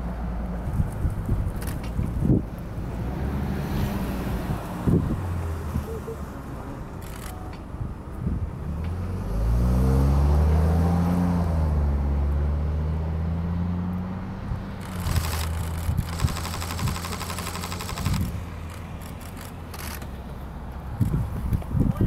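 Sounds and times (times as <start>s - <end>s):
vehicle engine passing by: 2.1s - 7.3s, 8.6s - 21.5s
rapid high ticking buzz: 14.8s - 20.0s.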